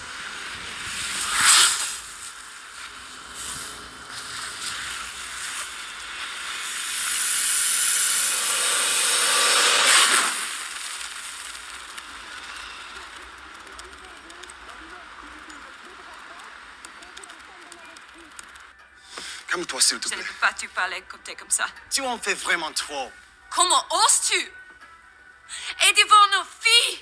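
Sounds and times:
long airy rush: 0.0 - 13.2.

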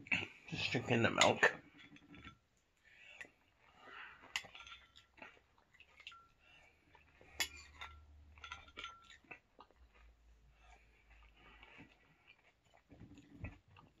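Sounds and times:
spoon clinking on ceramic bowl: 7.4 - 9.2.

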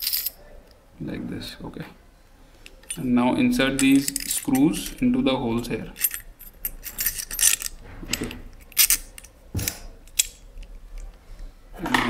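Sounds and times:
metal screws clicking and scraping: 0.0 - 0.4, 3.8 - 5.0, 6.0 - 11.1.

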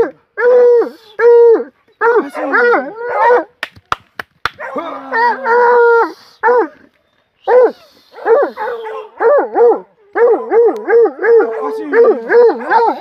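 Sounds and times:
hound baying and yelping: 0.0 - 3.5, 7.5 - 13.0.

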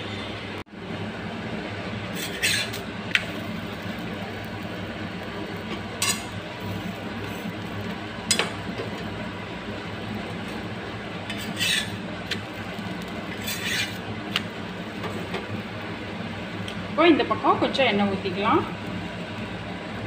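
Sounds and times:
flatbread hissing in oil: 2.1 - 15.8.

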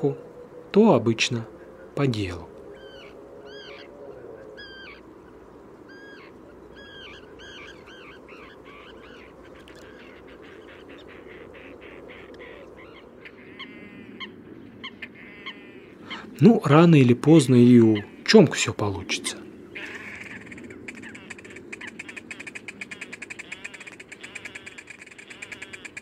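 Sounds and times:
low background hiss: 0.0 - 26.0
waterbirds honking: 0.8 - 16.8, 19.7 - 26.0
bird trilled calls: 2.7 - 16.4, 19.7 - 26.0
bird clicking notes: 20.4 - 26.0.

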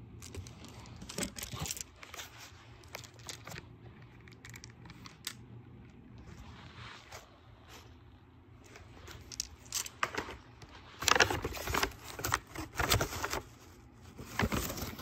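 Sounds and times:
plastic wrapping crinkling: 0.1 - 5.4.

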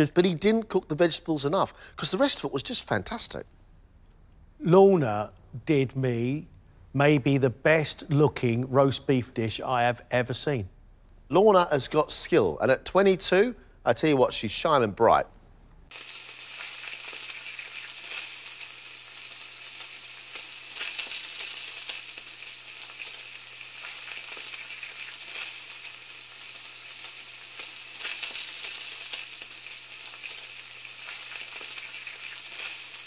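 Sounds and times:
food sizzling in a pan: 15.9 - 33.0.

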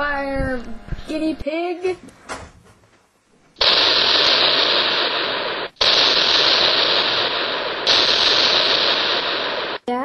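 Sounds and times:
loud steady hiss: 3.6 - 9.8.

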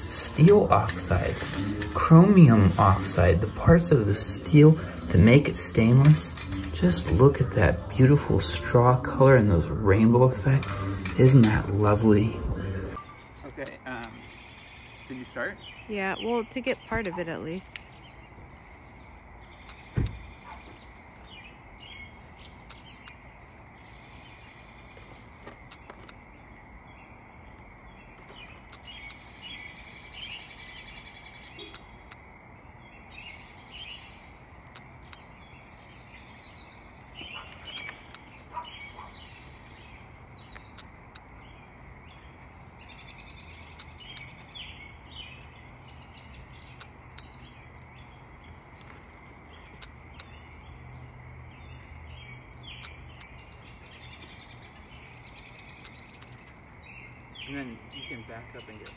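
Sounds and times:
small birds chirping: 0.0 - 58.9
sharp clicks: 13.2 - 14.2, 16.6 - 18.0, 19.1 - 20.3, 22.5 - 23.2, 25.6 - 26.2, 31.5 - 32.2, 34.6 - 35.6, 37.4 - 38.5, 40.4 - 41.4, 43.7 - 44.4, 46.6 - 47.5, 55.7 - 56.5, 58.7 - 58.9.

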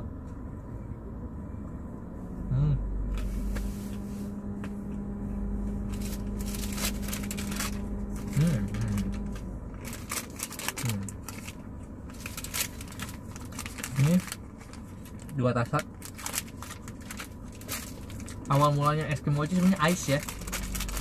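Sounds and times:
steady low hum: 0.0 - 21.0
plastic packaging rustling: 5.8 - 21.0.

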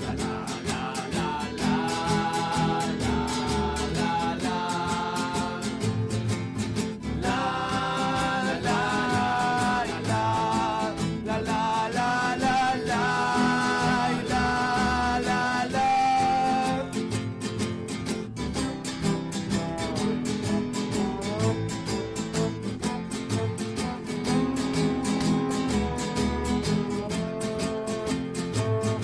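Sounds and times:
person singing long notes: 0.0 - 5.7, 7.2 - 17.0
acoustic guitar strumming: 0.0 - 29.0.

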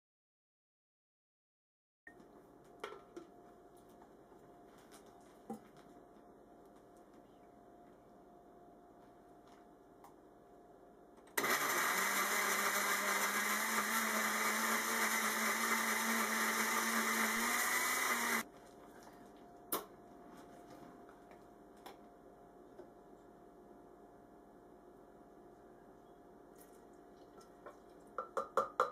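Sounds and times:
blender running: 11.4 - 18.4.

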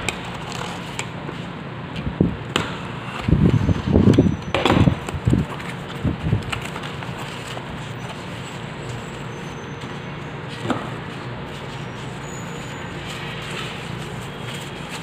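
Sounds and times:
cardboard flaps scraping and rustling: 4.7 - 15.0.

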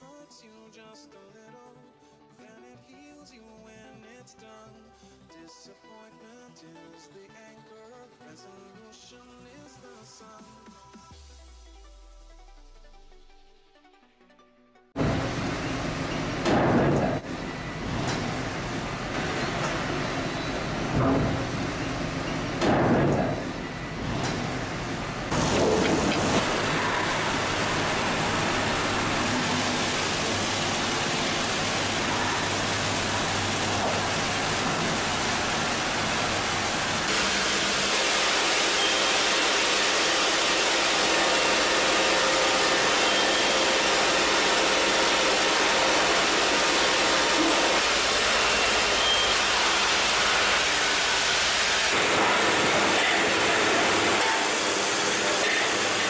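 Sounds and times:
sawmill machinery running: 15.0 - 56.0.

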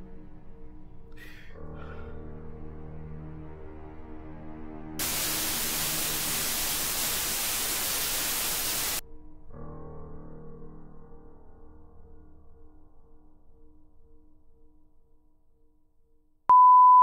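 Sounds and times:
tv static hiss: 5.0 - 9.0.

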